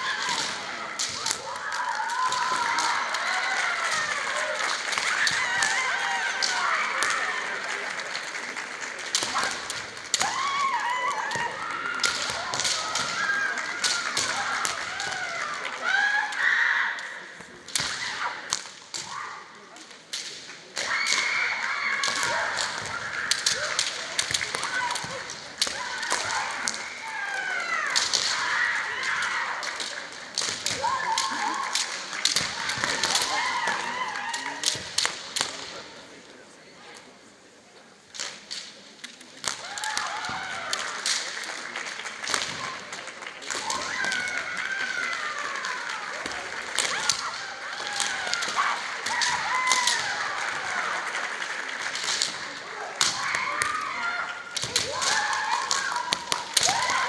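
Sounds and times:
bamboo swords clashing: 0:00.0 - 0:07.2, 0:11.3 - 0:15.3, 0:17.7 - 0:33.8, 0:45.2 - 0:50.7, 0:51.9 - 0:57.0
women shouting yells: 0:01.2 - 0:07.3.

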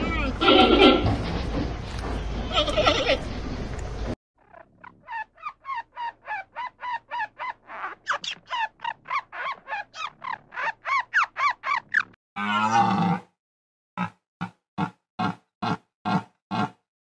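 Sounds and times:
squirrel barking chatter: 0:04.4 - 0:12.2.

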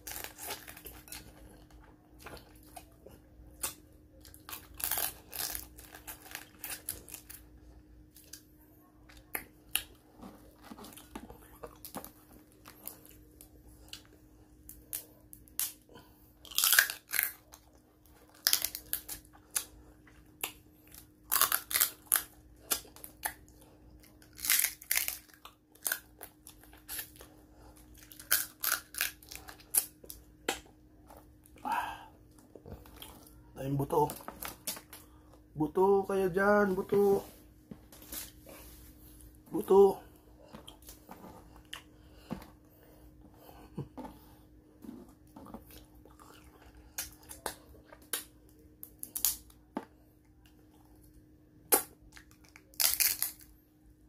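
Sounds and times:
crab shell crunching: 0:16.4 - 0:19.7, 0:20.3 - 0:23.4, 0:24.1 - 0:30.7, 0:51.7 - 0:53.5
chewing: 0:43.4 - 0:48.2.

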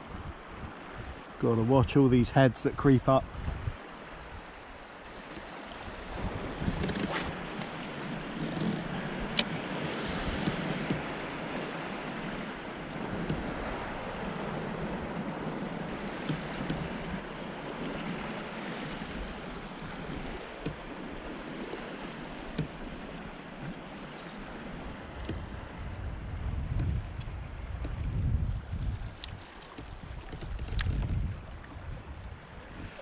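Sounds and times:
wind on microphone: 0:00.0 - 0:23.8, 0:24.4 - 0:33.0
sea water lapping around kayak: 0:00.0 - 0:33.0
faint sharp clicks: 0:29.2 - 0:31.8.

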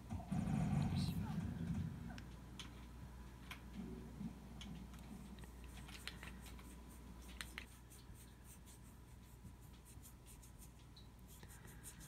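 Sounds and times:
applicator rubbing on nail: 0:05.7 - 0:12.0.

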